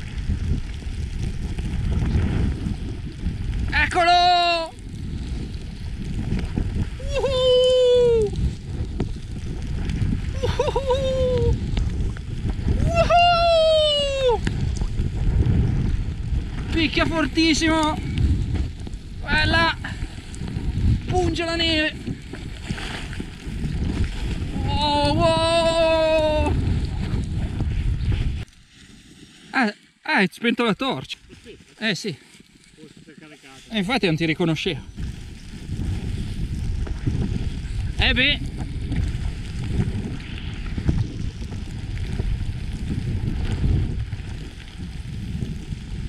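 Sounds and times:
wind buffeting microphone: 0.0 - 28.6, 30.8 - 46.0
person calling out: 3.7 - 4.8, 7.0 - 8.4, 10.4 - 11.6, 12.8 - 14.4, 24.6 - 26.6.

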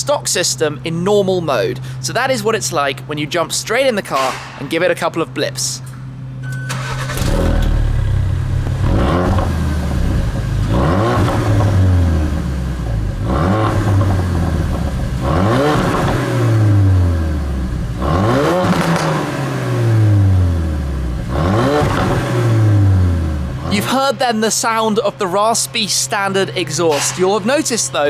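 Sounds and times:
car engine revving: 6.7 - 24.2
exhaust pops and crackles: 7.2 - 12.1, 12.9 - 16.6, 18.6 - 19.4, 21.2 - 22.3.

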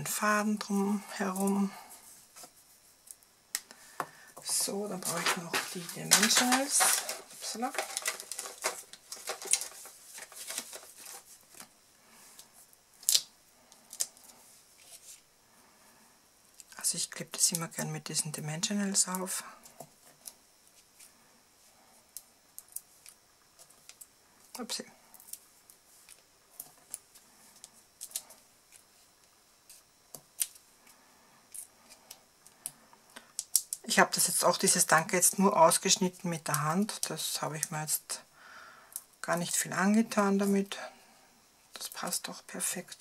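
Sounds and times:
sheet rustling and crinkling: 4.5 - 11.8.

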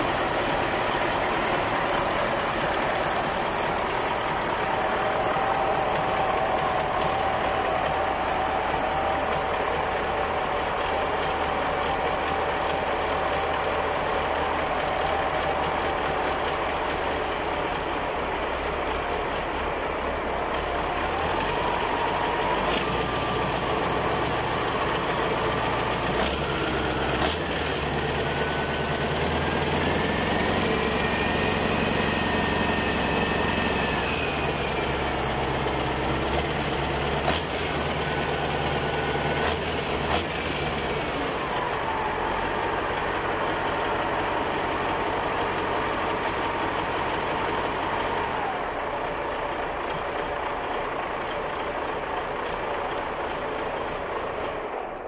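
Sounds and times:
diesel engine running: 0.0 - 55.0
engine whine: 0.0 - 55.0.

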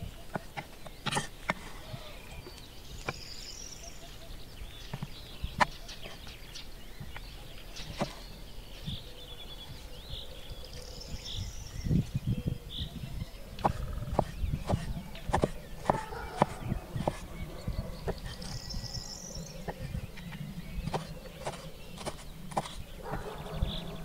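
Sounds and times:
birds chirping: 0.0 - 24.0
knife cutting on wooden board: 13.6 - 17.3, 20.9 - 22.8.

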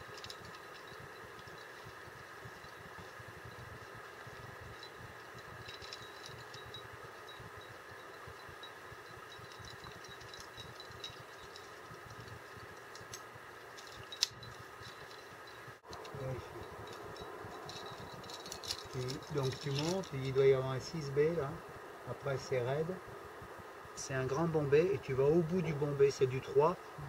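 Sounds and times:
rope being handled: 0.0 - 20.4
climbing hardware clinking: 0.0 - 21.2
steady low hiss: 0.0 - 27.0.

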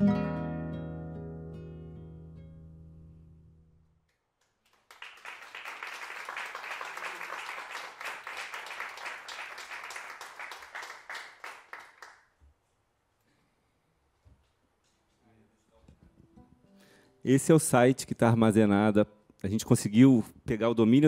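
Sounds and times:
audience applauding: 4.4 - 12.3.

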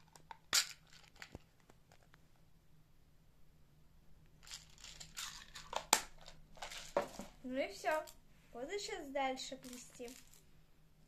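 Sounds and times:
plastic box rustling and clicking: 4.5 - 8.2.

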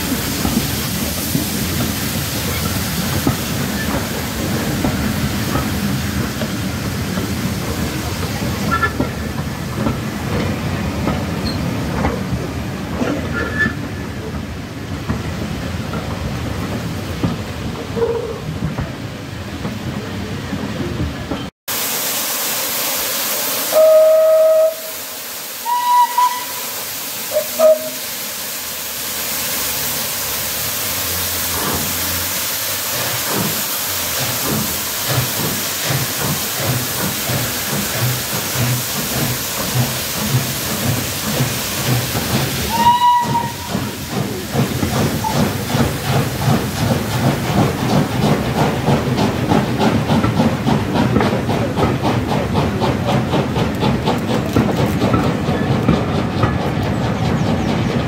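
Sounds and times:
locomotive steam hissing: 0.0 - 58.0
steam whistle blasts: 23.6 - 28.1, 42.7 - 43.9
rhythmic locomotive exhaust beat: 23.7 - 58.0.

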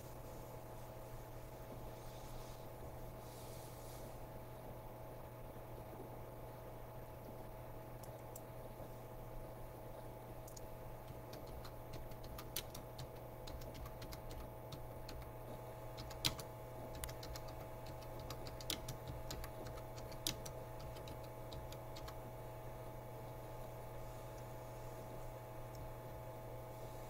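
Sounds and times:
small irregular clicks: 8.0 - 8.5, 10.4 - 15.4, 16.0 - 22.2.

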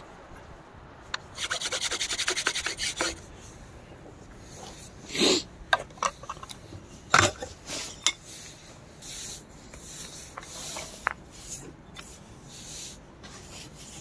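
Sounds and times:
short rubbing scrapes: 7.7 - 14.0.

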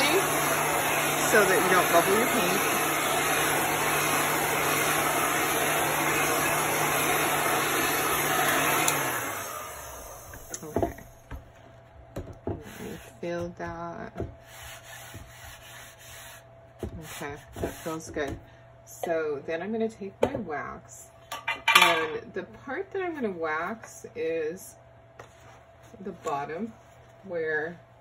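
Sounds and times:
heat gun blowing: 0.0 - 10.8
hand rubbing over wood: 14.4 - 16.4.

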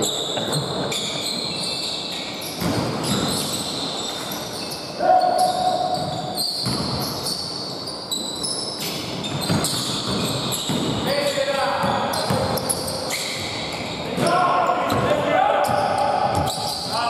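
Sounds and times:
basketball bouncing on wooden court: 2.5 - 3.7, 5.4 - 7.5, 8.8 - 17.0.

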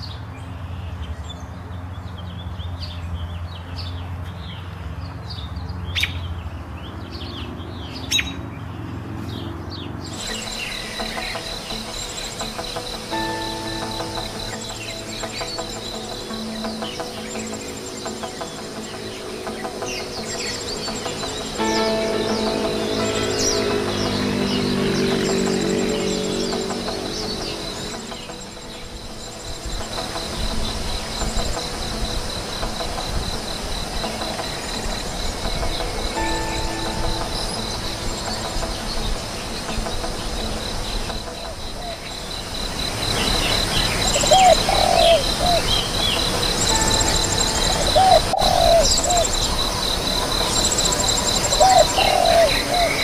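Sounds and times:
very high trills: 10.0 - 53.0
insect chirping: 10.1 - 53.0
low cooing bird calls: 44.2 - 45.8, 47.8 - 49.4, 51.6 - 53.0.

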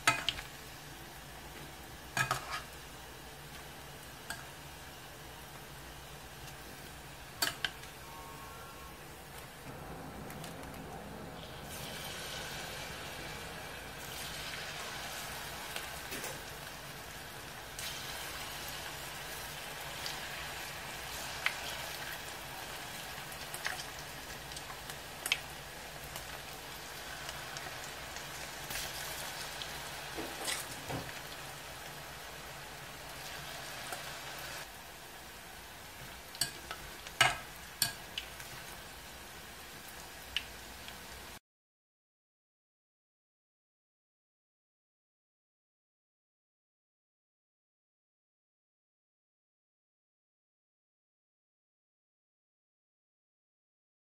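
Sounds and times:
fish deep-frying in oil: 0.0 - 9.4, 11.3 - 41.4.

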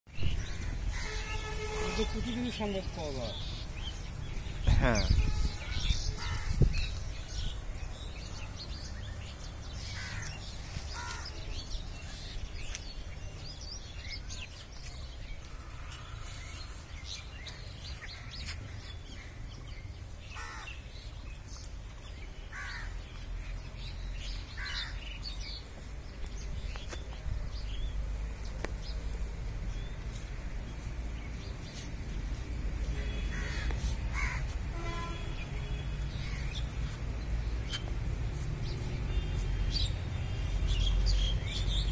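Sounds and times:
birds chirping: 0.1 - 41.9
crows cawing: 0.3 - 1.4, 9.9 - 11.4, 20.3 - 20.8, 22.5 - 23.0, 24.6 - 25.0, 33.3 - 34.6.

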